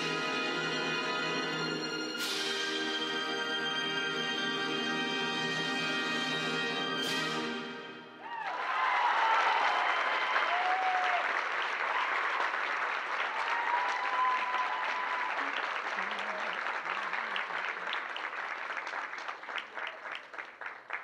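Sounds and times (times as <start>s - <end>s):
audience applauding: 8.2s - 21.0s.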